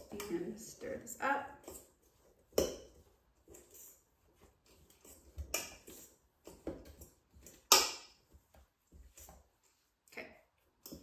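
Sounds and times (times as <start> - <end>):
fork scraping metal bowl: 0.0 - 8.2.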